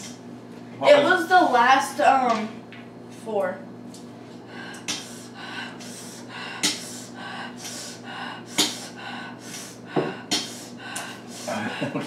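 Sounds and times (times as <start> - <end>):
person panting through mouth: 4.5 - 12.0.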